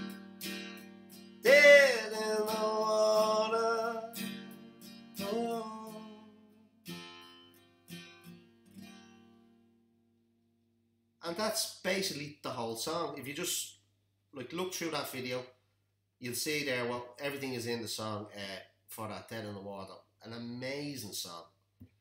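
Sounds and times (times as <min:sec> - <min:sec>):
acoustic guitar strumming: 0:00.0 - 0:09.7
man singing: 0:01.4 - 0:04.3, 0:05.2 - 0:06.4.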